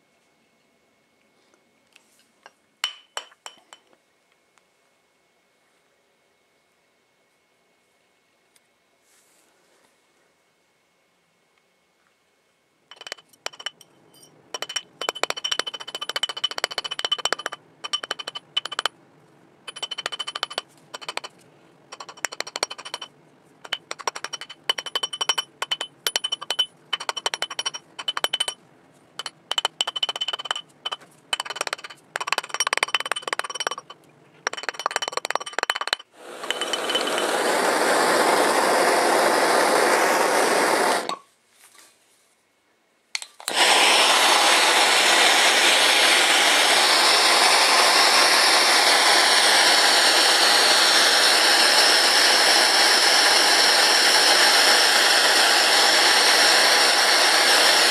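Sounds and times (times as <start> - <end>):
hammer tapping metal: 2.8 - 3.9, 12.9 - 18.9, 19.7 - 21.3, 21.9 - 28.6, 29.2 - 37.3
gas torch hissing: 36.2 - 41.2, 43.4 - 57.9.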